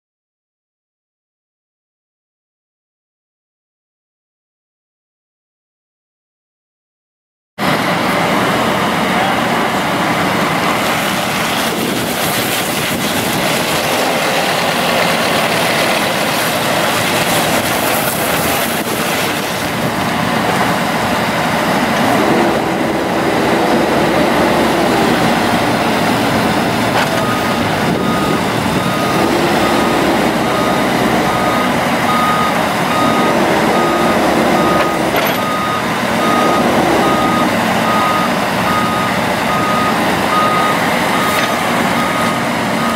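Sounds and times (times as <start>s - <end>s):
diesel engine running: 7.6s - 42.9s
reversing alarm beeping: 26.9s - 42.9s.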